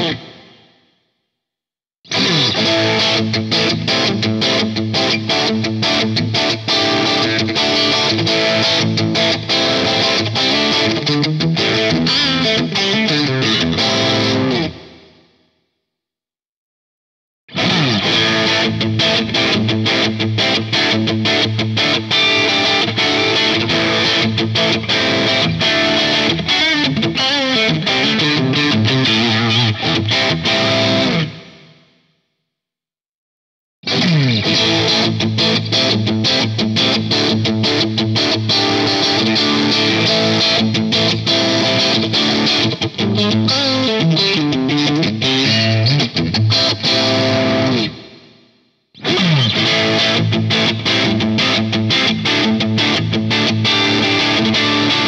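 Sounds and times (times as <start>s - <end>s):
overdriven electric guitar riffs: 0.0s - 0.8s, 2.1s - 15.2s, 17.5s - 31.9s, 33.8s - 55.0s
guitar note sliding down: 17.5s - 19.6s, 49.0s - 51.5s.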